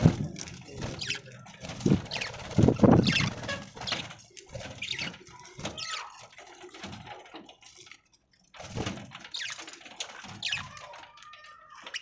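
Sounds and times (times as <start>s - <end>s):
beaks pecking and cracking seed: 0.3s - 8.2s, 9.2s - 12.0s
budgerigars chirping: 0.9s - 4.2s, 4.8s - 5.2s, 9.3s - 9.6s, 10.4s - 10.8s.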